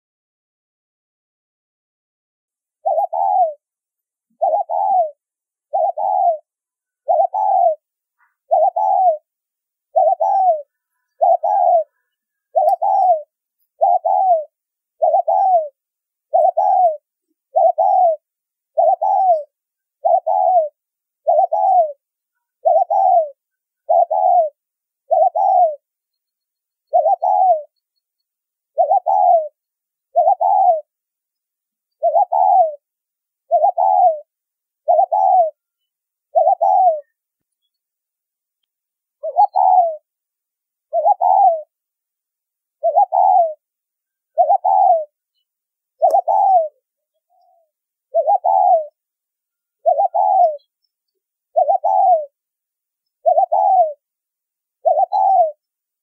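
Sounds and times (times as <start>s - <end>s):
dove cooing: 2.8s - 3.7s, 4.3s - 9.3s, 9.9s - 25.9s, 26.8s - 27.8s, 28.7s - 30.9s, 32.0s - 35.6s, 36.3s - 37.2s, 39.2s - 40.1s, 40.9s - 41.8s, 42.8s - 43.7s, 44.3s - 45.2s, 46.0s - 49.0s, 49.8s - 50.7s, 51.5s - 52.4s, 53.2s - 54.0s, 54.8s - 55.6s.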